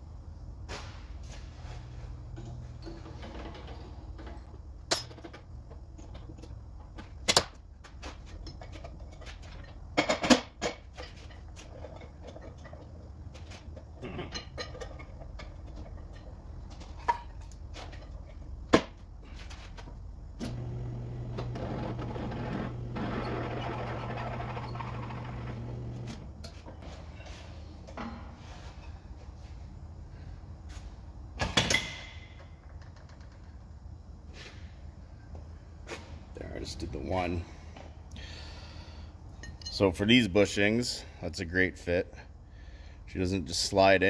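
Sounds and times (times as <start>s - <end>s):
metal parts and tools clanking: 2.3s - 18.5s
drill press motor humming: 20.4s - 26.4s.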